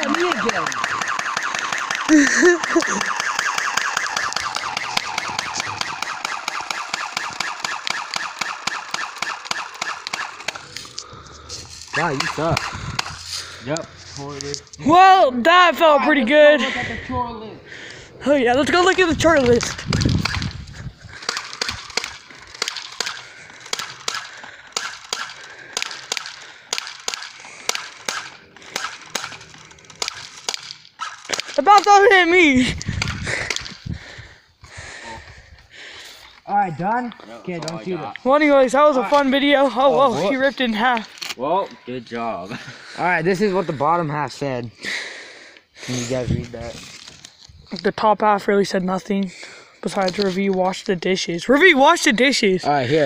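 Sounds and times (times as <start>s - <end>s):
bb rifle firing full auto: 0.0s - 10.6s
bb gun firing: 0.0s - 10.8s, 12.0s - 13.2s, 18.8s - 20.6s, 21.2s - 32.1s.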